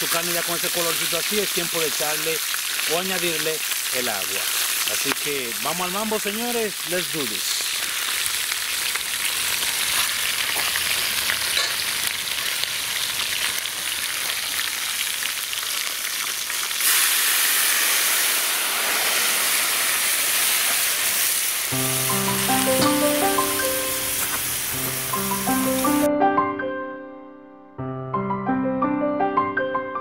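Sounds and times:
meat sizzling in a pot: 0.0 - 26.1
water hissing with steam: 0.0 - 26.1
music: 21.7 - 30.0.

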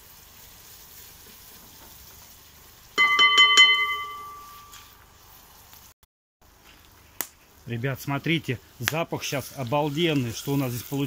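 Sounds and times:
utensil knocking on iron pot: 3.0 - 4.4.

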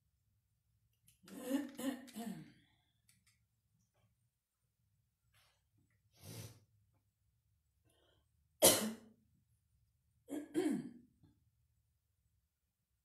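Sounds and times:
woman coughing: 8.6 - 9.1, 10.3 - 11.0
woman clearing throat: 10.3 - 11.0.

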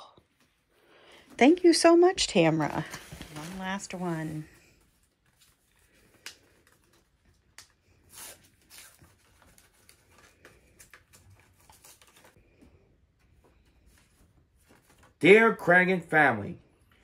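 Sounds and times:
paper envelope rustling: 2.6 - 12.6, 13.6 - 15.3
paper ripping: 7.6 - 12.4.

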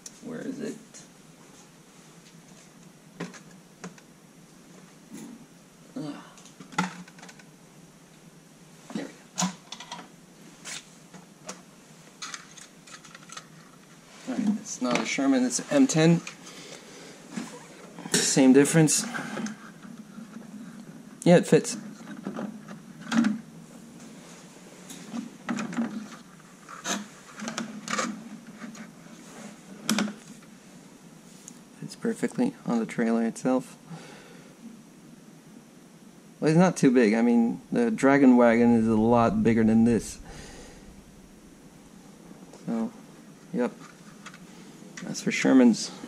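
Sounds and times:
plastic parts clicking and rustling: 12.2 - 13.8.

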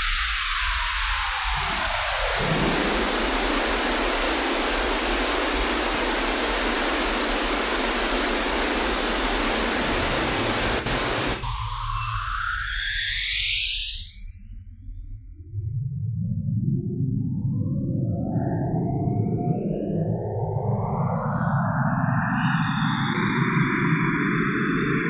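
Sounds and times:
electronic noise hiss: 0.0 - 14.4.

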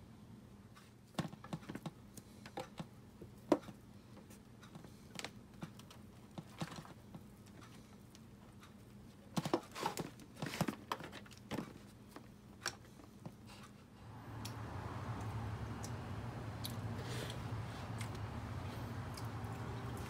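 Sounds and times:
steady low hum: 11.4 - 20.0.

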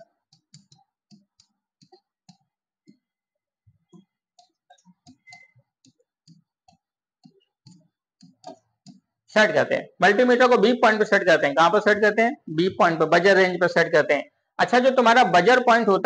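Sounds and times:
marker pen writing on board: 0.0 - 9.3
marker tip squeaking: 3.9 - 9.1.

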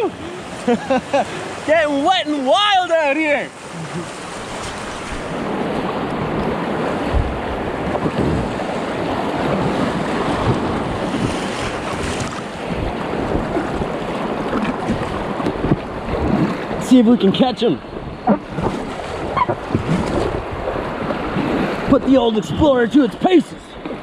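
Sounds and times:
river water rushing: 0.0 - 22.6
wind buffeting microphone: 3.7 - 22.7.

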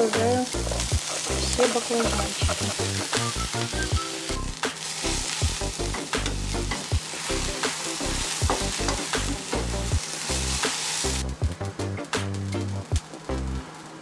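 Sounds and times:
vegetables sizzling in a frying pan: 0.0 - 14.0
wooden spatula scraping a pan: 0.6 - 3.1.

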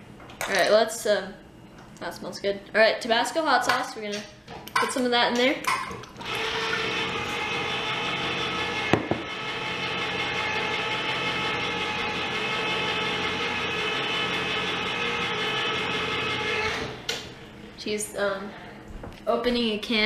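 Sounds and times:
electric can opener motor hum: 6.1 - 17.2.

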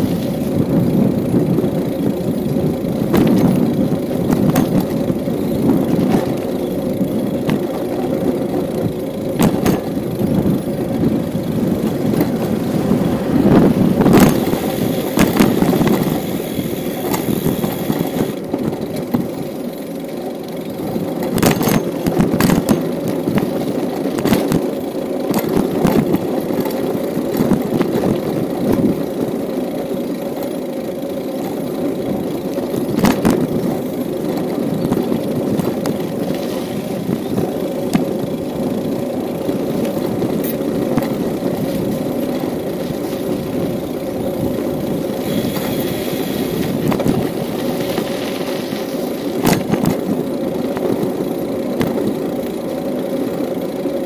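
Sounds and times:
bicycle tyres rumbling on asphalt: 0.0 - 54.0
bike rattles and clicks: 0.0 - 54.0
wind on microphone: 9.4 - 19.3, 39.7 - 50.2.

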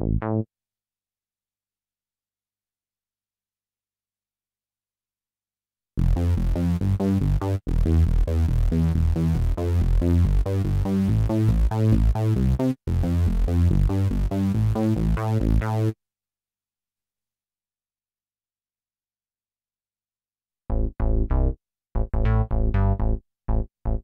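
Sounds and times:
synthesizer bass sequence: 0.0 - 0.4, 6.0 - 16.0, 20.7 - 24.0.

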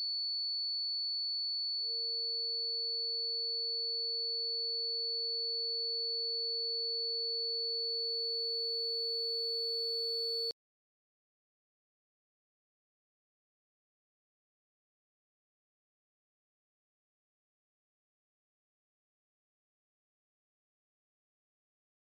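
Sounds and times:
low steady electronic tone: 1.8 - 10.5.

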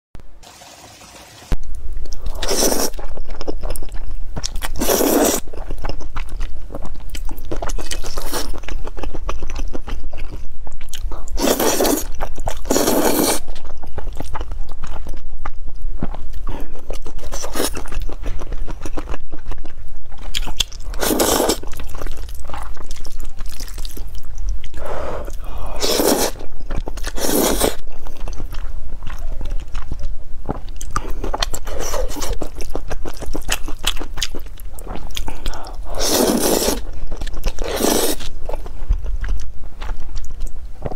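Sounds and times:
wet chewing: 1.6 - 40.9
noodles slurped loudly: 35.9 - 36.8, 37.6 - 38.3.

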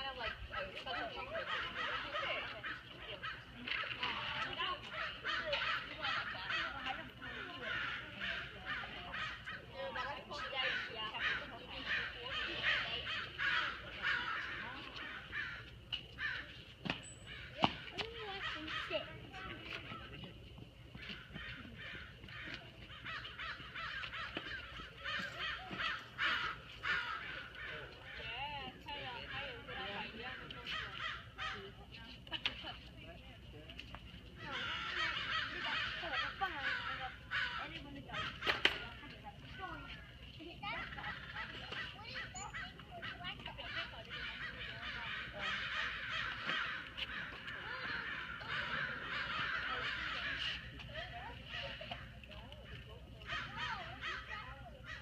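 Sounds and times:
birds cawing harshly: 1.0 - 19.1, 21.0 - 28.3, 30.6 - 31.7, 34.4 - 38.8, 40.7 - 50.8, 53.2 - 55.0.

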